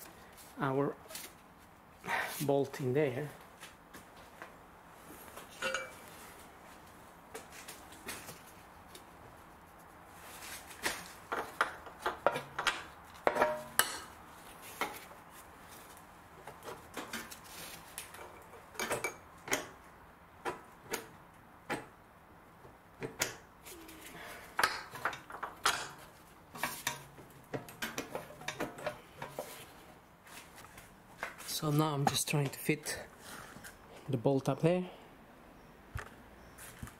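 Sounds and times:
metallic clinks and knocks: 5.5s - 6.0s.

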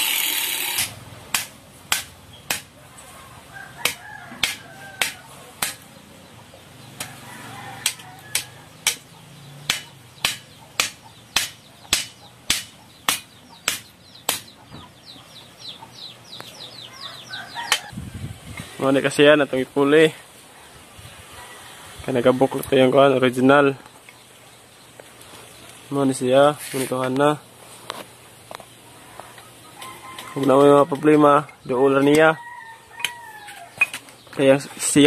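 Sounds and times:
bird chirping: 8.1s - 18.5s
hammer striking metal: 8.8s - 14.5s.

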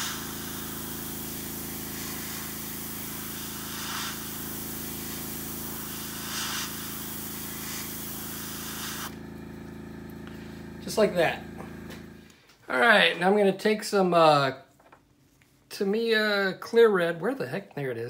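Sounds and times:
airbrush spraying hissing bursts: 0.0s - 9.2s
steady low hum: 0.0s - 12.7s.

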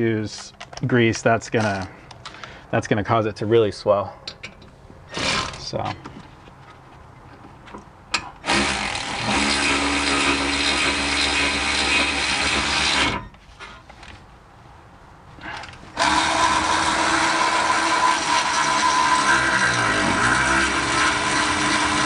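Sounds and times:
cordless power tool running: 8.4s - 13.2s, 16.0s - 22.0s.

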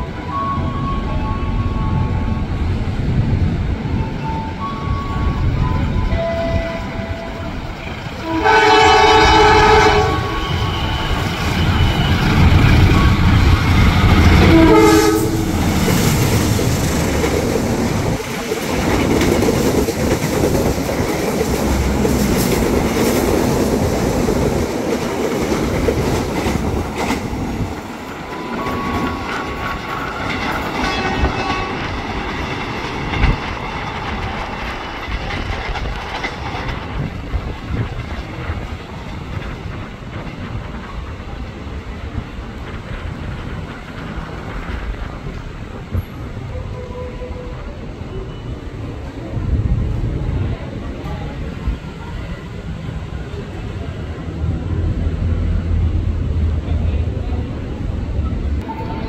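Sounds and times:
train horn with falling pitch: 8.2s - 16.1s, 30.8s - 32.0s
train wheels clacking over rail joints: 8.2s - 46.4s.

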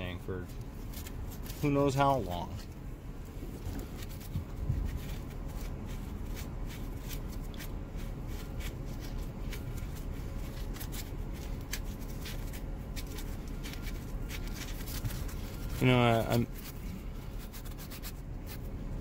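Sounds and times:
sandpaper rasping on plastic: 3.9s - 18.7s.

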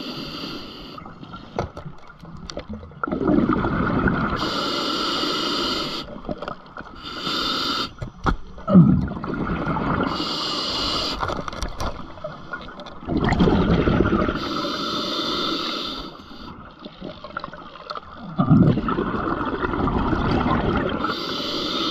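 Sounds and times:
hissing regulator inhale: 0.0s - 1.5s, 4.4s - 6.2s, 7.0s - 8.2s, 10.1s - 11.4s, 14.4s - 16.7s, 21.0s - 21.9s
bubbling exhale underwater: 3.0s - 4.6s, 8.6s - 11.1s, 13.0s - 14.6s, 18.1s - 21.3s.

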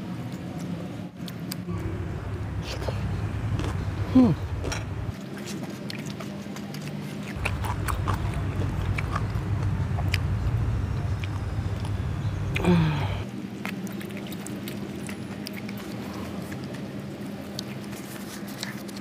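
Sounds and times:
person eating by hand and chewing: 0.0s - 19.0s
low rumble: 1.7s - 5.2s, 7.4s - 13.3s.

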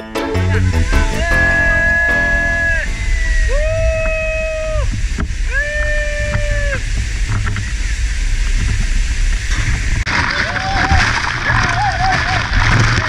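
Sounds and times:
long high tones: 0.0s - 6.9s
waterfall roaring: 0.6s - 13.0s.

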